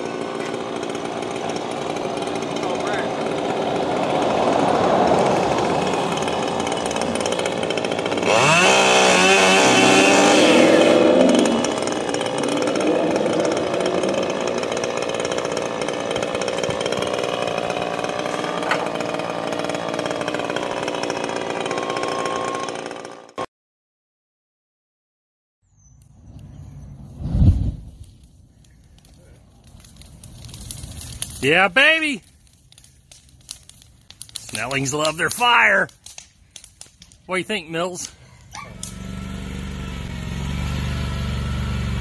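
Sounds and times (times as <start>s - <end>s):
chainsaw running and revving: 0.0s - 23.5s, 37.7s - 42.0s.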